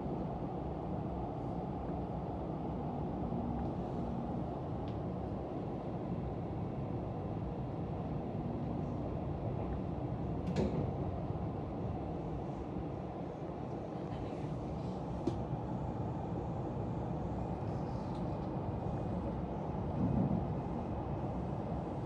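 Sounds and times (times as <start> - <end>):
train wheels rumbling on rail: 17.9 - 22.0.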